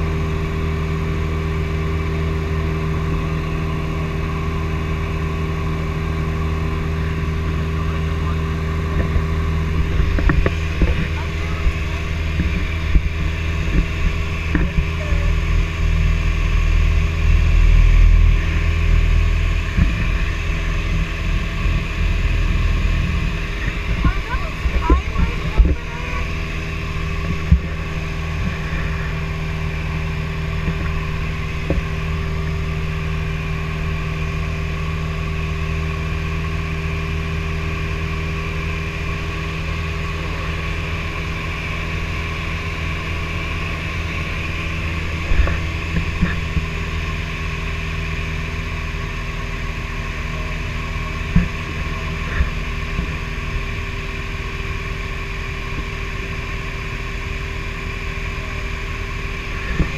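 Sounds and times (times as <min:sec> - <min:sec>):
propeller airplane engine drone: 0:00.0 - 0:59.9.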